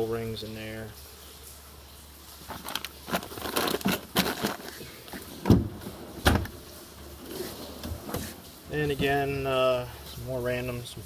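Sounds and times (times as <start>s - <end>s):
steel drawers clattering: 2.5s - 9.1s.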